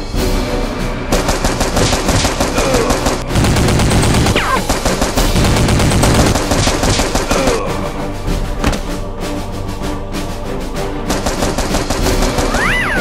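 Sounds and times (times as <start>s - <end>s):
action music: 0.0s - 13.0s
automatic gunfire bursts: 1.2s - 7.6s, 11.1s - 12.8s.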